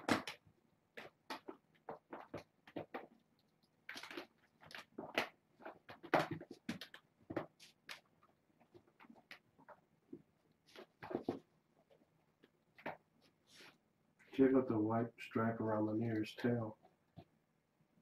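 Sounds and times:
kittens scratching and scuffling: 0.0s - 13.8s.

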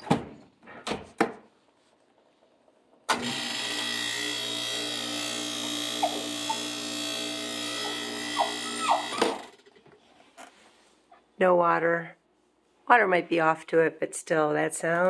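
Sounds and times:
dishwasher motor humming: 3.0s - 9.7s.

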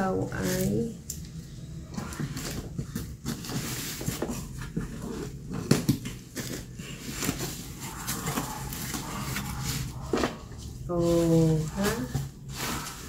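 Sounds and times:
cardboard flaps scraping: 1.9s - 13.0s.

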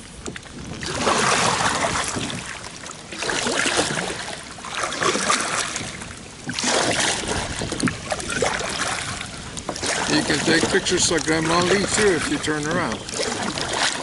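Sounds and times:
paddle splashing through water: 0.0s - 14.0s.

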